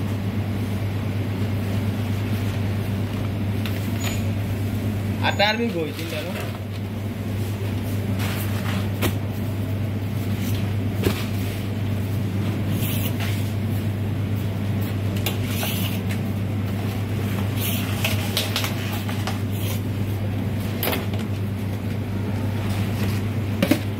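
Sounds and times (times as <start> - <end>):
kitchen machinery hum: 0.0 - 23.9
clicks and rustles of food handling: 15.1 - 19.9.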